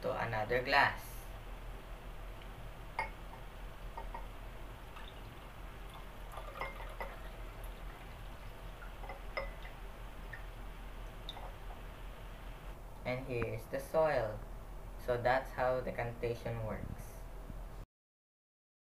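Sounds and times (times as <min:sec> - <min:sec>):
faint low hum: 0:00.0 - 0:17.8
water pouring into a glass: 0:04.8 - 0:10.4.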